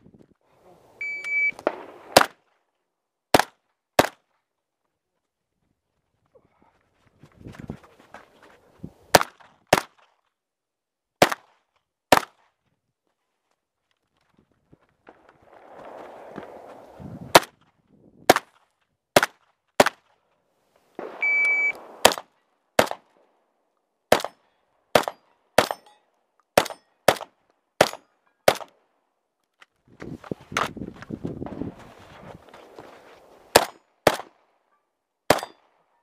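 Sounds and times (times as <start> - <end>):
short high beep: 1.0 - 1.6, 21.2 - 21.8
shotgun firing: 1.5 - 2.4, 21.0 - 23.2, 24.1 - 25.8, 33.5 - 34.3
rustling: 29.6 - 33.6.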